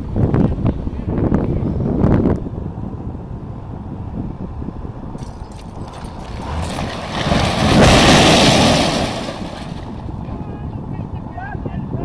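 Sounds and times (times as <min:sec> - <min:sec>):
wind noise on microphone: 0:00.0 - 0:12.0
low rumble: 0:04.0 - 0:10.4
falling concrete crashing: 0:05.3 - 0:10.1.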